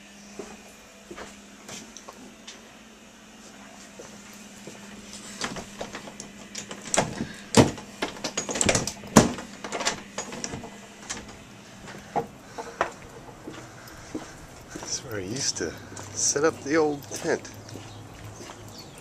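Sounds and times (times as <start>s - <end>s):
faint steady hum: 0.0s - 19.0s
clicks and knocks: 5.4s - 13.4s.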